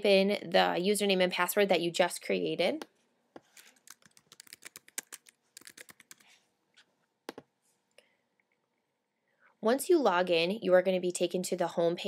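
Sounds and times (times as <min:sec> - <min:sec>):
typing on a computer keyboard: 0:03.6 - 0:06.2.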